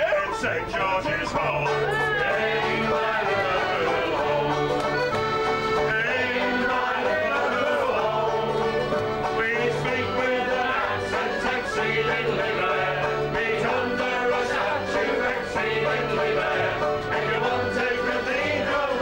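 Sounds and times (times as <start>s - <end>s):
folk band playing acoustic tune: 0.0s - 19.0s.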